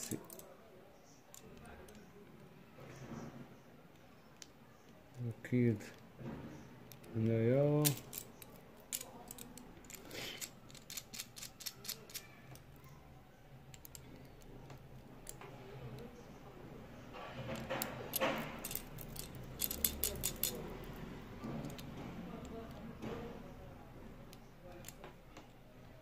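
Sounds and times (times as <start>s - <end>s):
metallic clicks and clinks: 0.0s - 0.5s, 7.8s - 12.7s, 17.4s - 21.0s
watch bracelet jingling: 18.2s - 20.6s.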